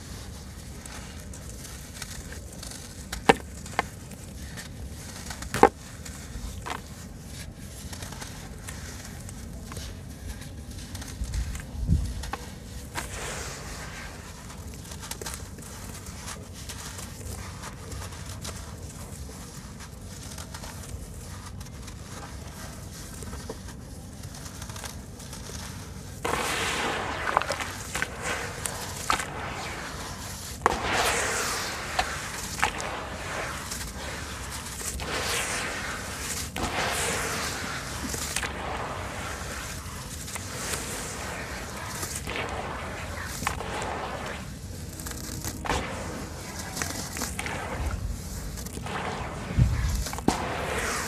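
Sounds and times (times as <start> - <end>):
sand-cement chunks crumbling by hand: 0.0 - 51.0.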